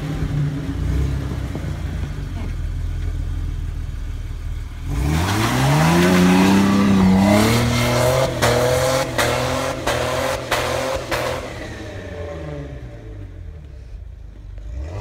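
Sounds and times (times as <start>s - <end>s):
engine revving hard: 4.8s - 13.0s.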